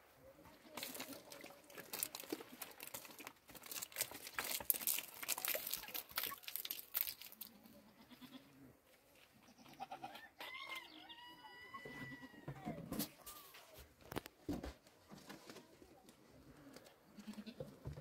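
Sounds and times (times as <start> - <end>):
plastic bottles crinkling and knocking: 0.7 - 7.6, 14.0 - 16.8.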